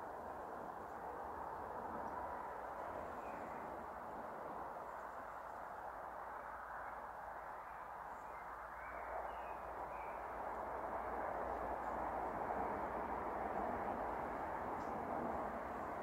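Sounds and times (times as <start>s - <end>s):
low rumble with hiss: 0.0s - 16.0s
faint bird chirps: 6.4s - 10.3s.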